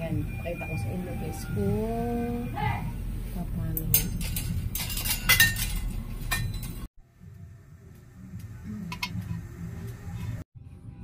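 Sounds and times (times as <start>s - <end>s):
pot and utensils clinking: 3.8s - 6.9s.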